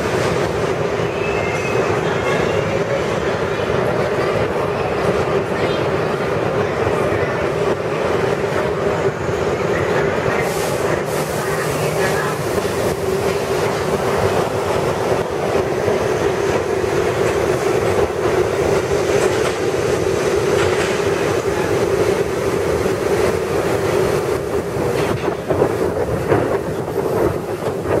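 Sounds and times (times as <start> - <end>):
subway train rumbling: 0.0 - 28.0
wheel clatter over rail joints: 12.3 - 28.0.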